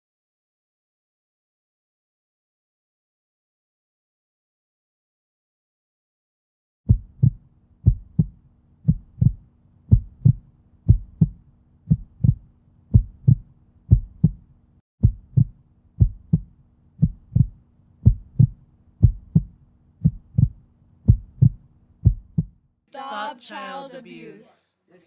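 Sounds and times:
heartbeat thumps: 0:06.9 - 0:22.6.

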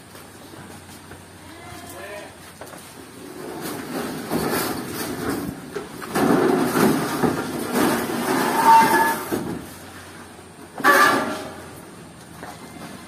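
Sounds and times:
metal frame scraping across truck bed: 0:03.1 - 0:12.0.

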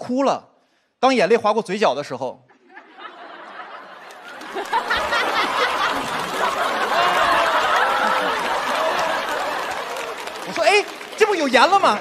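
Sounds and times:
studio audience laughing: 0:02.5 - 0:12.0.

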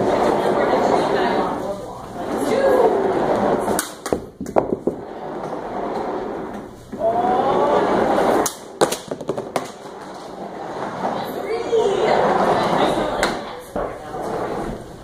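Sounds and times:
caster wheels rolling on tiles: 0:00.0 - 0:06.7, 0:07.4 - 0:14.8.

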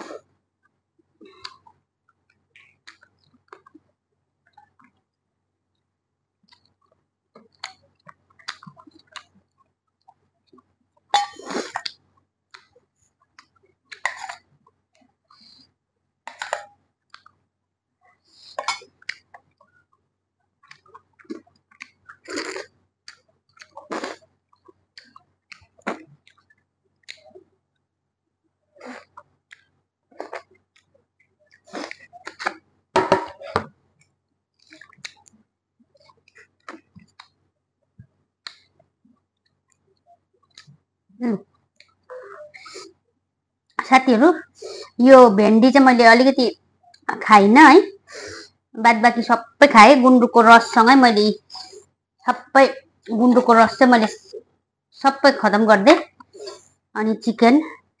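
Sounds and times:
chewing and mouth smacking: 0:01.2 - 0:05.1, 0:06.4 - 0:15.7, 0:16.3 - 0:17.4, 0:18.1 - 0:27.9, 0:28.8 - 0:32.6, 0:33.5 - 0:37.4, 0:38.0 - 0:42.6.

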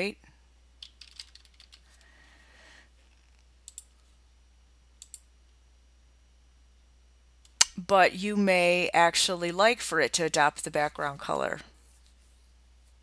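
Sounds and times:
computer clicks: 0:03.3 - 0:03.9, 0:05.0 - 0:05.3.

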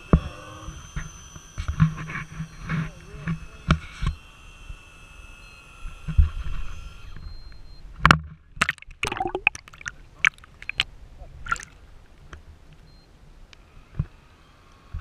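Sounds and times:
splash into water: 0:08.6 - 0:10.8, 0:11.4 - 0:11.8
underwater gurgles and bubbles: 0:08.6 - 0:10.8
underwater clicks: 0:08.6 - 0:10.9, 0:11.5 - 0:11.8.

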